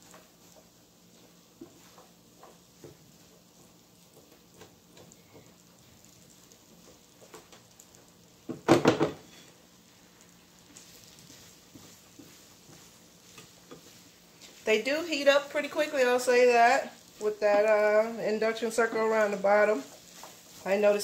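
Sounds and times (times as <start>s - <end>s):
loud clatter of knocks: 8.5s - 9.2s
spatula scraping frying pan: 10.7s - 21.0s.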